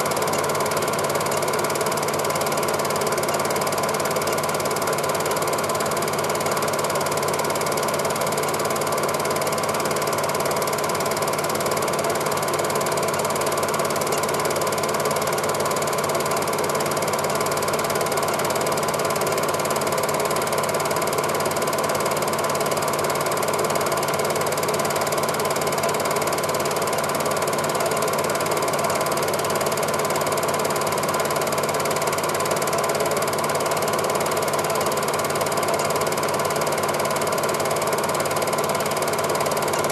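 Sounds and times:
film projector clattering: 0:00.0 - 0:39.9.

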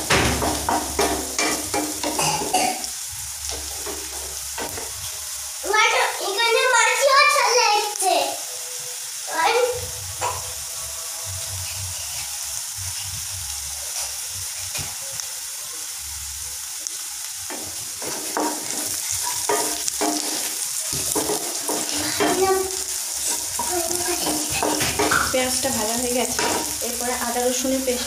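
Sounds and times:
onions sizzling in oil: 0:00.0 - 0:28.0
wooden spatula scraping pan: 0:17.5 - 0:27.0.

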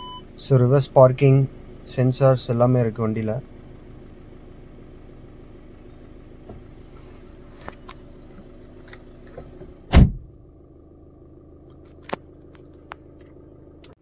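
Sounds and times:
diesel engine idling: 0:00.0 - 0:14.0
loud thump: 0:09.9 - 0:10.4.

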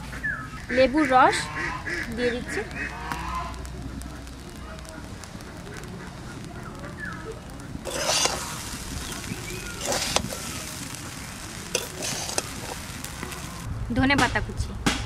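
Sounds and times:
metal spatula scraping pan: 0:07.9 - 0:10.8, 0:11.7 - 0:13.4.

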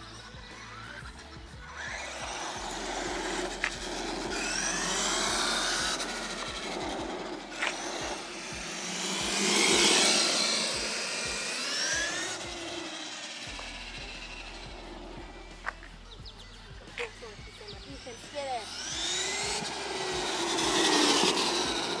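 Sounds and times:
electric motor whine: 0:01.7 - 0:16.2, 0:16.9 - 0:22.0
tyre noise on asphalt: 0:01.8 - 0:16.4, 0:18.9 - 0:22.0.

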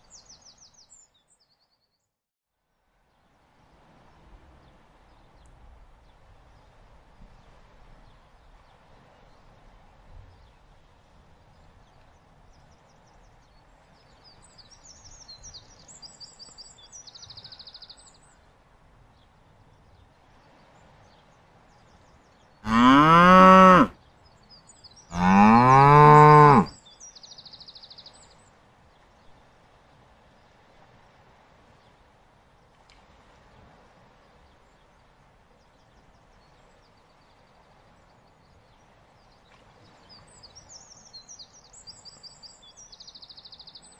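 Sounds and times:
buffalo bellowing: 0:22.7 - 0:23.9, 0:25.1 - 0:26.7.

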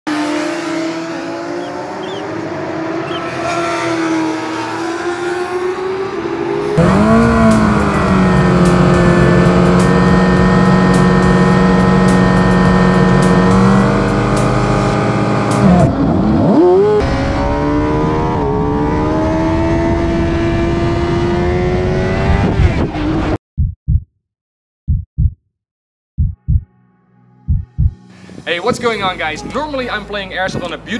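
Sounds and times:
motorcycle engine revving: 0:00.1 - 0:23.4.

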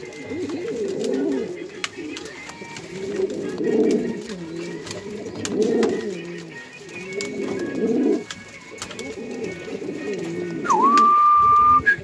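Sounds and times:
pigeon cooing: 0:00.0 - 0:12.0
high whistle-like tone: 0:10.6 - 0:12.0.

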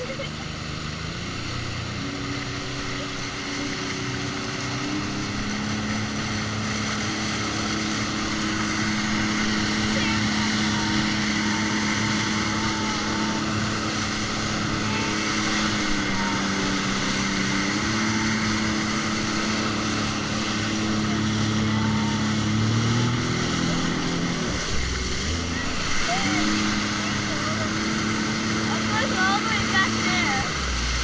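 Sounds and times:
jet ski engine running: 0:00.0 - 0:31.0
rushing water noise: 0:00.0 - 0:31.0.

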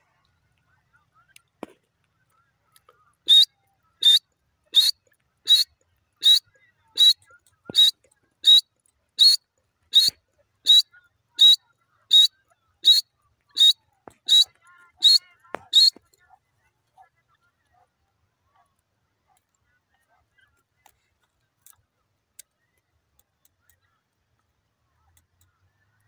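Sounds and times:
bird calling short sharp notes: 0:03.3 - 0:06.4, 0:07.0 - 0:08.6, 0:13.6 - 0:16.0.

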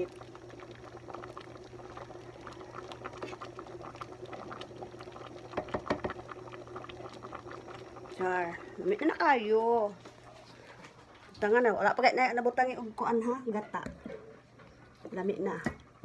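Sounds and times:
stew bubbling in a pot: 0:00.0 - 0:13.2.

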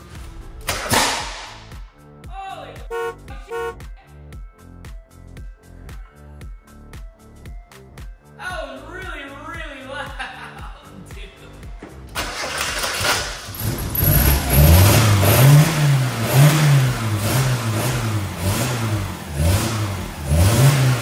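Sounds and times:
car engine cranking and revving: 0:12.1 - 0:21.0.

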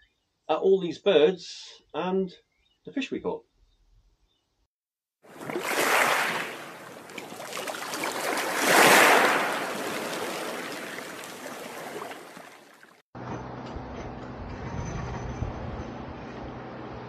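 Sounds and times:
rushing water: 0:05.3 - 0:13.0.

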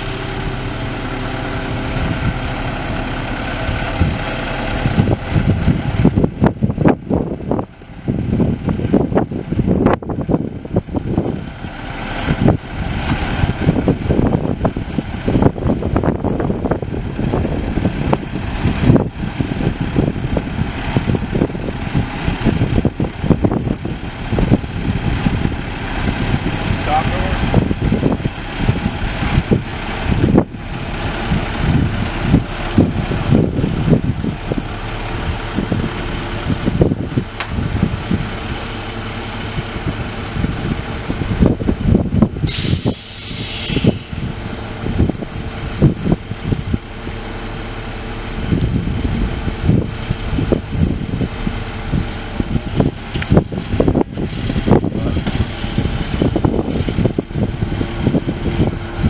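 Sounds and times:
diesel truck engine running: 0:00.0 - 0:59.0
hissing air burst: 0:42.4 - 0:44.4.

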